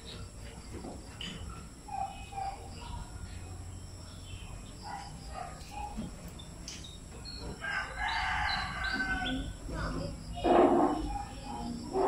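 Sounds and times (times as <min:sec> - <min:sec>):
rooster crowing: 0:07.6 - 0:09.6.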